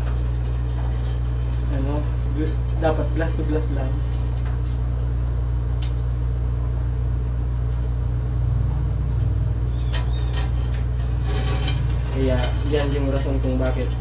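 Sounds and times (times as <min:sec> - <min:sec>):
low mechanical hum: 0:00.0 - 0:14.0
blade scraping glass: 0:09.7 - 0:14.0.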